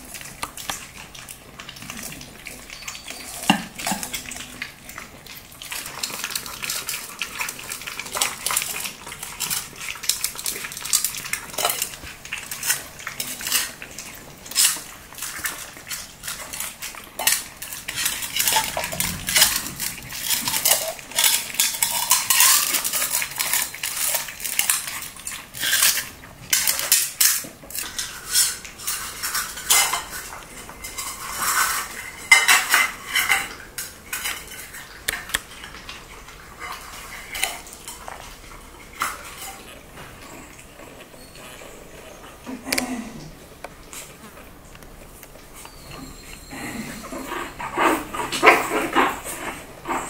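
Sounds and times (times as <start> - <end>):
kibble clinking in metal bowls: 0.1 - 39.7.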